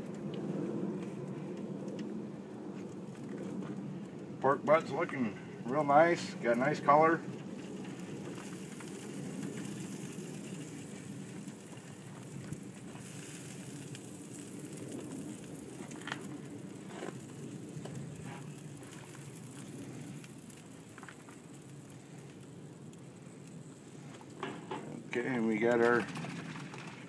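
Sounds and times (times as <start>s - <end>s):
fire crackling and hissing: 0.0s - 27.0s.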